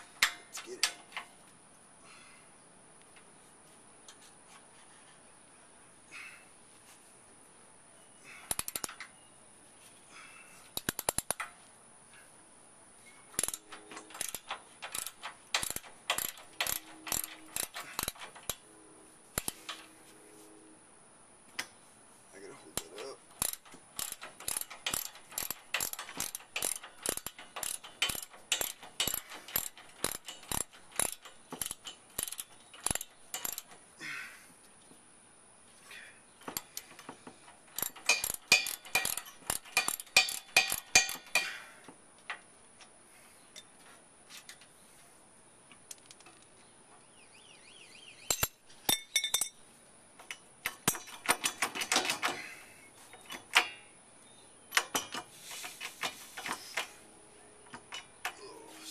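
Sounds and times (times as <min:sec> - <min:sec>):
ratchet wrench clicking: 0:08.5 - 0:09.1, 0:10.8 - 0:11.5, 0:13.3 - 0:18.6, 0:19.4 - 0:19.9, 0:22.8 - 0:33.8, 0:37.7 - 0:41.6.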